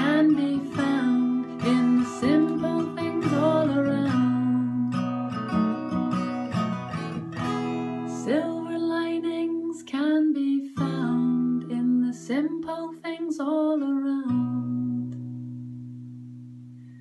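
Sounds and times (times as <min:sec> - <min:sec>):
woman singing: 0:00.0 - 0:05.2, 0:08.0 - 0:15.3
acoustic guitar strumming: 0:00.0 - 0:09.5.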